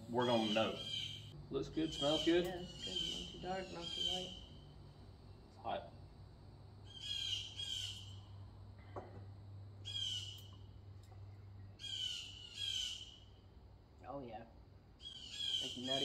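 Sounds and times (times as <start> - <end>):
wild bird calling: 0.0 - 5.0, 6.8 - 8.5, 9.8 - 13.6, 15.0 - 16.0.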